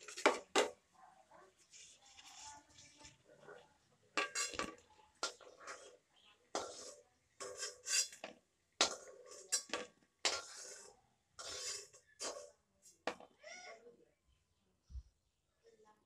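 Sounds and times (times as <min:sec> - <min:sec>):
metal spatula scraping a pan: 0:00.0 - 0:00.8, 0:01.5 - 0:13.0.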